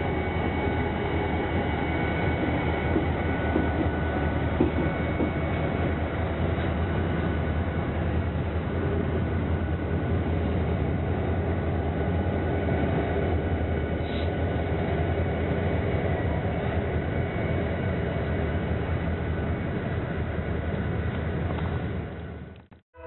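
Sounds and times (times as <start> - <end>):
train rumbling by: 0.0 - 23.0.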